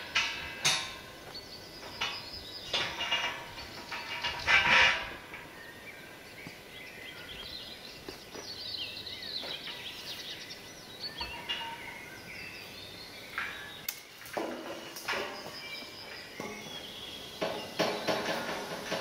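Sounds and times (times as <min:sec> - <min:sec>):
metallic clank and rattle: 0:00.0 - 0:05.7, 0:11.2 - 0:12.6, 0:13.3 - 0:19.0
metal panels clinking: 0:00.0 - 0:05.8, 0:11.2 - 0:12.6, 0:13.3 - 0:19.0
songbirds chirping and singing: 0:00.0 - 0:19.0.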